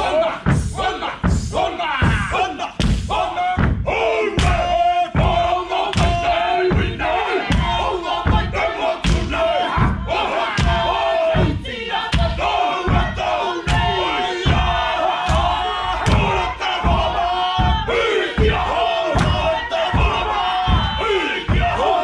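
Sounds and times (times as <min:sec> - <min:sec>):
men chanting and shouting: 0:00.0 - 0:22.0
rhythmic stamps and slaps: 0:00.0 - 0:22.0.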